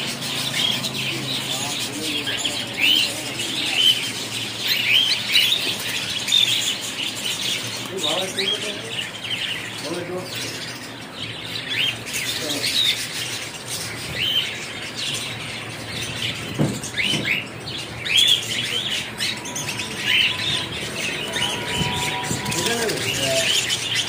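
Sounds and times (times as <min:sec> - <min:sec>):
bird chatter: 0:00.0 - 0:24.0
birds chirping: 0:00.0 - 0:24.0.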